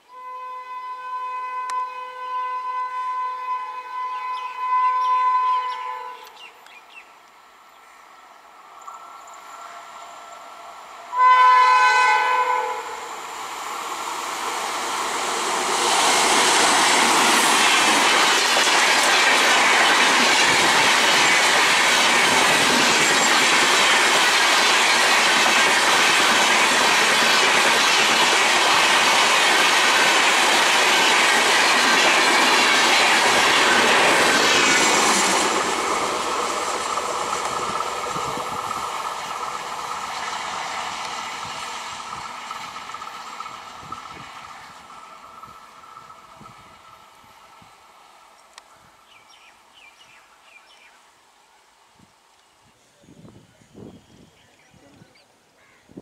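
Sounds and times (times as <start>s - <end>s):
train horn blast: 0.1s - 6.4s, 11.1s - 13.1s
train coaches rattling: 8.8s - 47.6s
wheels clacking over rail joints: 14.4s - 46.5s.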